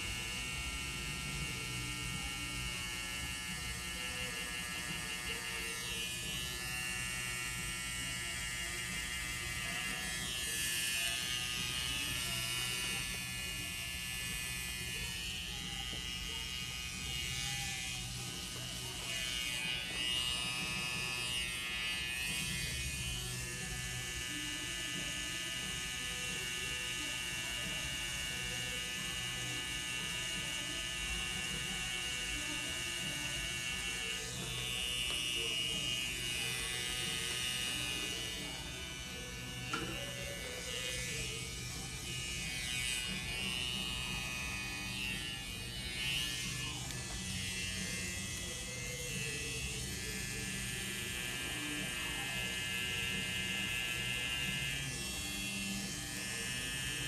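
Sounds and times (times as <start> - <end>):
tattoo machine buzzing: 0.0 - 57.0.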